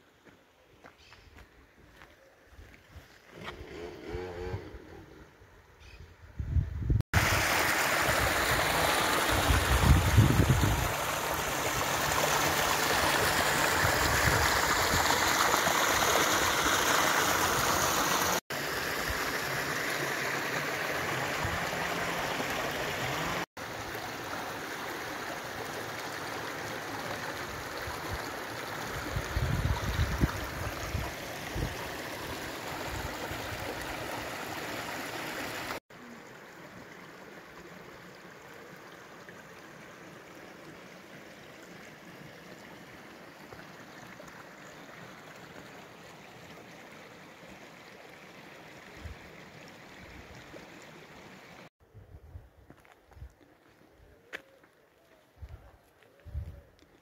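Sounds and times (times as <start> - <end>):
mountain stream rushing: 7.1 - 51.7.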